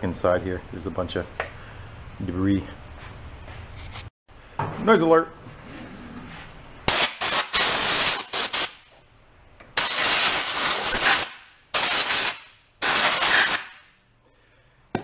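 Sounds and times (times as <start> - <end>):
compressed air blow gun hissing: 9.8 - 13.8.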